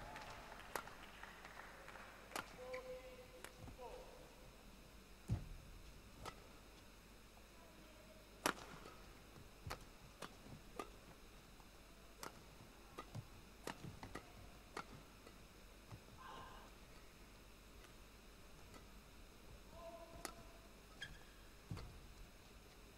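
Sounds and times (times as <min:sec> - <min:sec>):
racket hitting shuttlecock: 0:06.2 - 0:06.6, 0:08.4 - 0:11.2, 0:12.1 - 0:16.1, 0:18.6 - 0:22.0.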